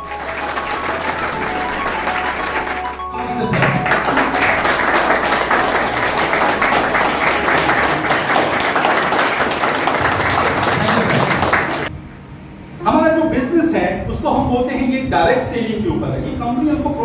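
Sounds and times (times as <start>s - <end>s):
crowd clapping: 0.0s - 11.9s.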